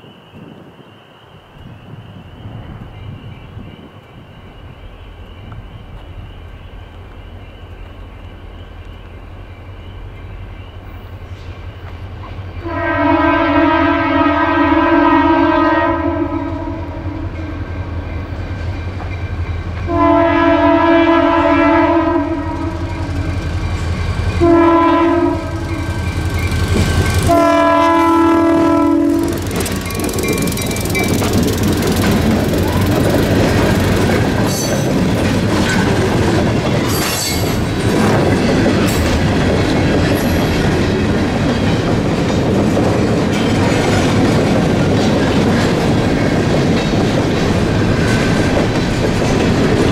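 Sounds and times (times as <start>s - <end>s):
train air horn blasts: 12.6s - 17.6s, 19.9s - 23.5s, 24.4s - 26.2s, 27.1s - 29.6s
locomotive diesel engines rumbling: 16.6s - 49.9s
freight cars rolling: 22.4s - 49.9s.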